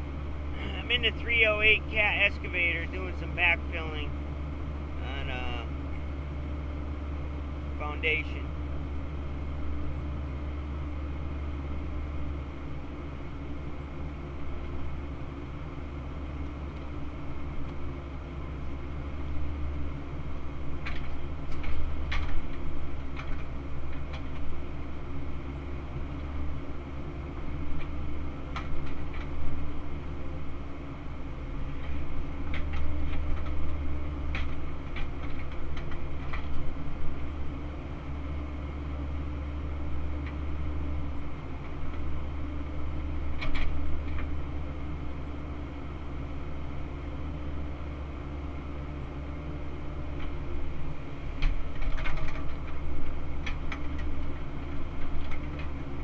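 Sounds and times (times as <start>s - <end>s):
excavator engine and hydraulics: 0.0s - 56.0s.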